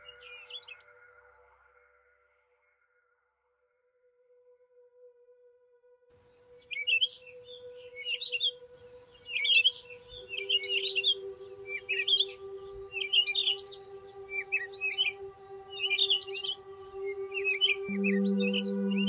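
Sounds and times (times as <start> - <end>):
ambient music drone: 0.0 - 3.0, 3.7 - 19.0
birds chirping: 6.5 - 19.0.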